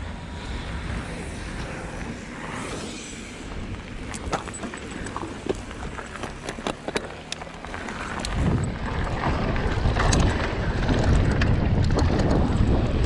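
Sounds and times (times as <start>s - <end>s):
wind buffeting microphone: 0.0s - 6.8s, 7.5s - 13.0s
tyres rolling on dirt: 0.0s - 13.0s
bike clicks and rattles: 0.4s - 13.0s.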